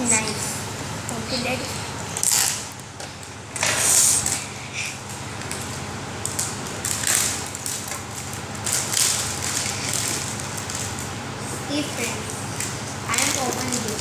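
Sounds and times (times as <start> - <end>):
packing tape ripping: 2.2 - 2.9, 6.2 - 11.1.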